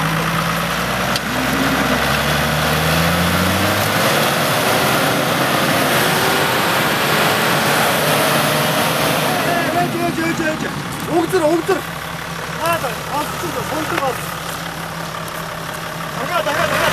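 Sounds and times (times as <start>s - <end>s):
engine revving hard: 0.0s - 11.9s, 16.1s - 16.9s.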